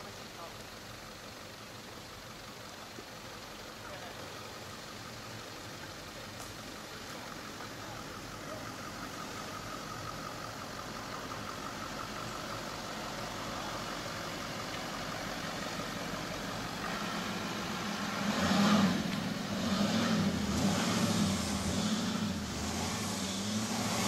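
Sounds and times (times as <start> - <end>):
car engine driving through sand: 11.3 - 24.0.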